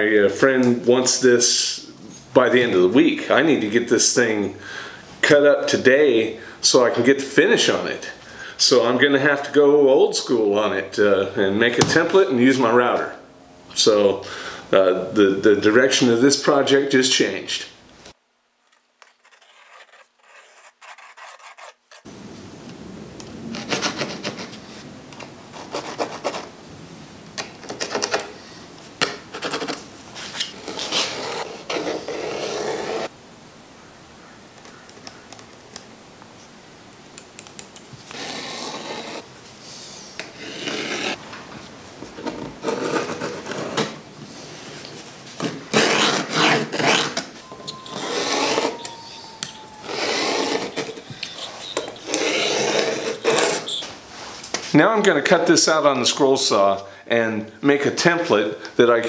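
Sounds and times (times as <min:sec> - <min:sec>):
pencil scratching on plywood: 0:19.0 - 0:22.1, 0:23.6 - 0:24.6, 0:25.5 - 0:26.5, 0:29.4 - 0:33.1, 0:38.1 - 0:39.2, 0:47.9 - 0:49.0, 0:49.8 - 0:53.8.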